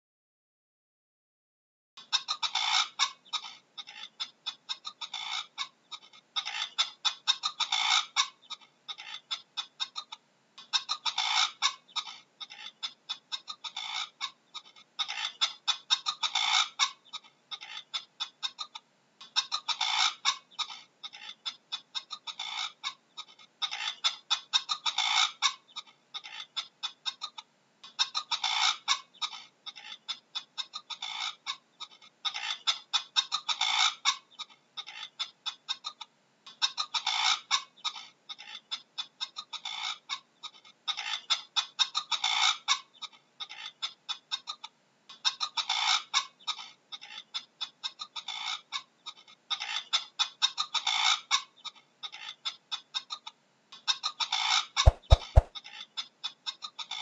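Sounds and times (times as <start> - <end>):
bird clucking calls: 54.8 - 55.5.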